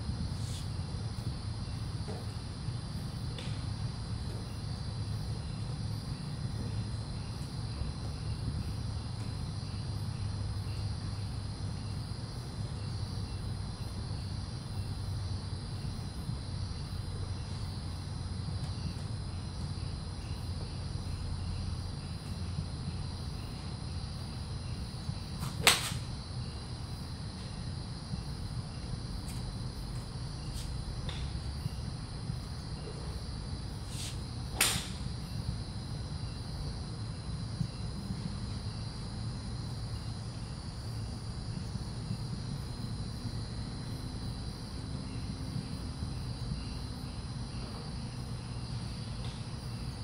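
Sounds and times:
crickets chirping: 0.0 - 50.0
golf club striking ball: 25.5 - 26.0, 34.5 - 35.0.

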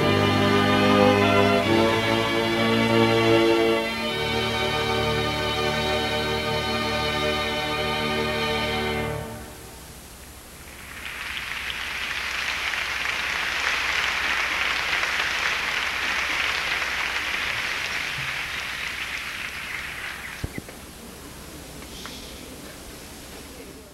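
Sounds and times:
audience applauding: 10.7 - 21.2.

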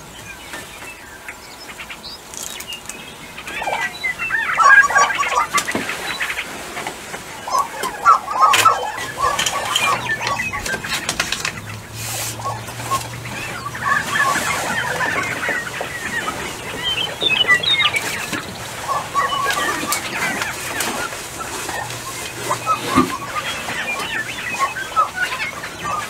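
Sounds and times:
prairie chickens cackling and clucking: 0.0 - 26.0.

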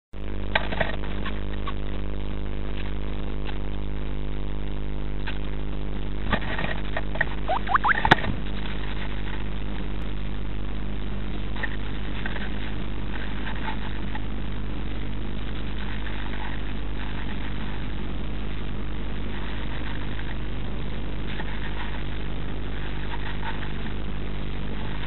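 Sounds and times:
steady electrical hum: 0.2 - 25.0
bird fluttering and scratching: 11.6 - 14.2, 15.7 - 17.8, 21.3 - 22.1, 22.7 - 24.0.

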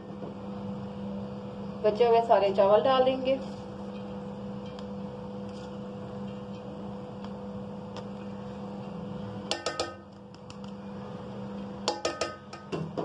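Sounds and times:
steady low hum: 0.0 - 13.0
metal pot knocked and ringing: 9.5 - 10.1, 11.9 - 13.0.

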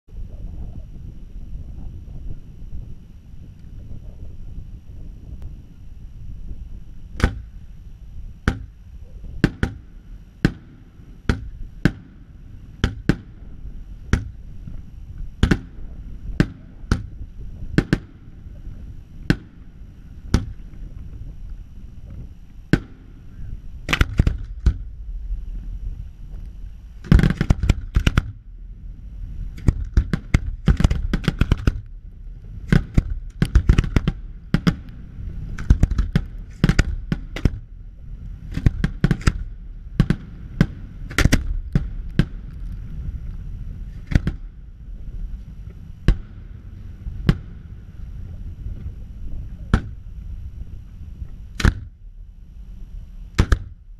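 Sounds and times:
low rumble: 0.0 - 53.9
fireworks bangs: 15.4 - 20.7.

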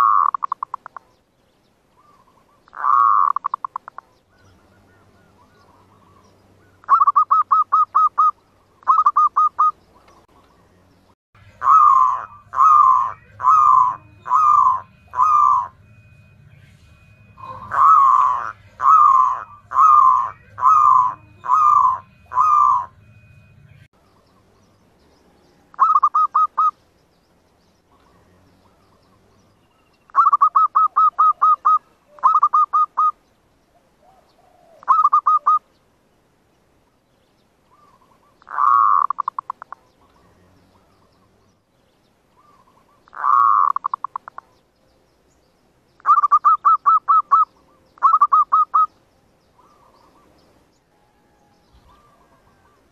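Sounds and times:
dove cooing: 0.0 - 1.1, 2.0 - 10.4, 11.6 - 15.9, 17.4 - 23.1, 25.7 - 26.8, 30.1 - 33.2, 33.8 - 35.7, 37.7 - 41.3, 42.4 - 44.6, 46.0 - 49.0, 49.6 - 50.4, 51.0 - 52.9.

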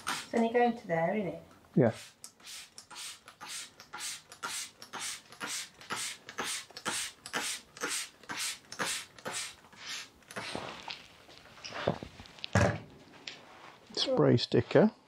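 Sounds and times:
spray bottle spritzing: 0.0 - 0.5, 1.9 - 11.0.

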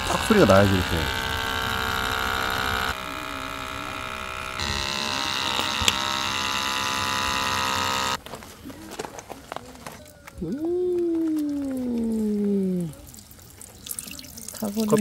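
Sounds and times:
espresso maker pump whirring: 0.0 - 8.2.

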